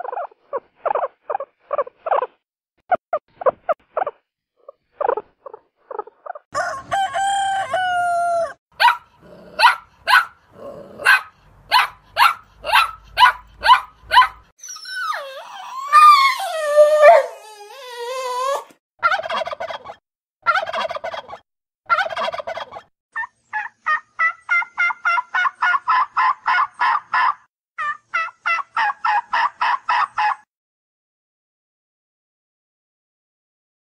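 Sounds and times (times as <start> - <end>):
sharp animal calls: 11.0 - 16.4.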